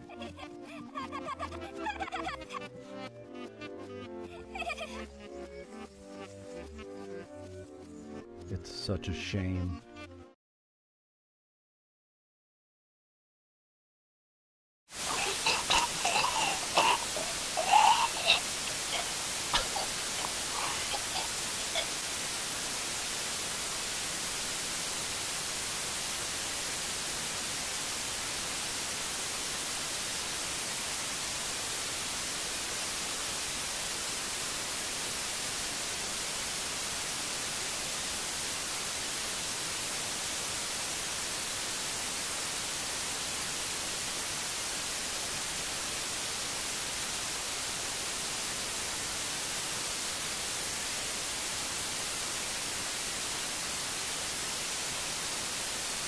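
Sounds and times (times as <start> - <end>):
static hiss: 14.9 - 56.0.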